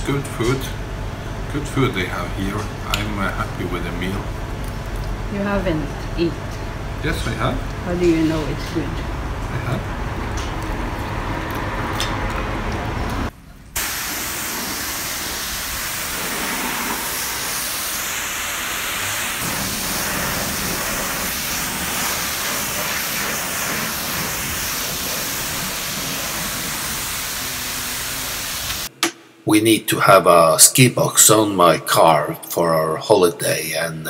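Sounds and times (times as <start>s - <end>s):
pressure washer spraying water: 13.8s - 28.9s.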